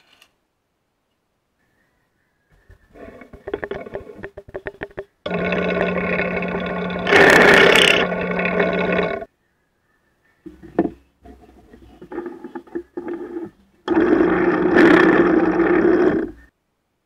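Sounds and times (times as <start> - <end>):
knocks and clatter: 3.4 - 5.2
drill bit cutting wood: 5.3 - 9.3, 13.0 - 16.4
drill press motor hum: 5.3 - 9.3.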